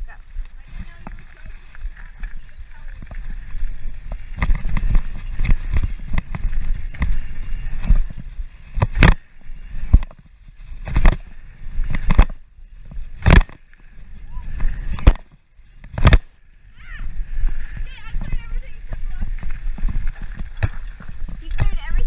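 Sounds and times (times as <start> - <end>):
bike tyres rumbling on dirt: 0.0 - 22.0
wind buffeting microphone: 10.8 - 22.0.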